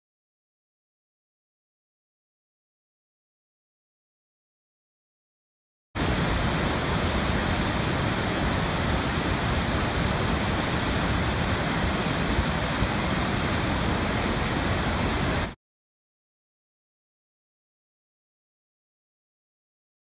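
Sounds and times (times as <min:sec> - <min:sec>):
waterfall rushing: 0:06.0 - 0:15.6.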